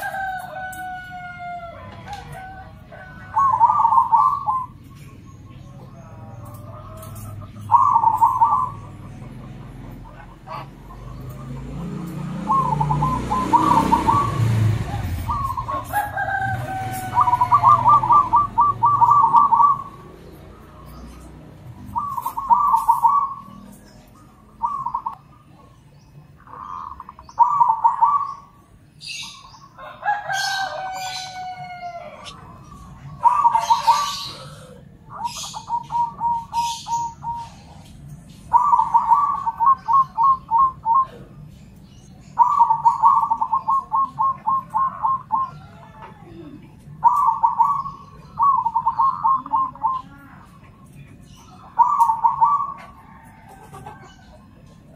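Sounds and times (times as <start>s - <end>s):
doves cooing with stuttering trills: 0.0s - 54.9s
bird chirps and squeaky call: 12.5s - 46.0s.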